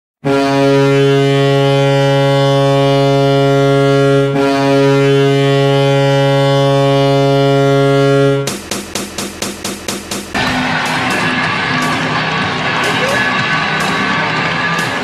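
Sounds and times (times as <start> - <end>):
deep goal horn blasts: 0.2 - 8.7.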